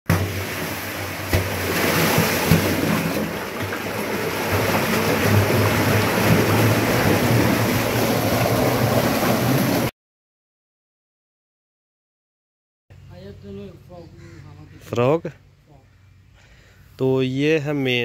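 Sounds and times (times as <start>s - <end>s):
sewage water rushing: 0.1s - 9.9s.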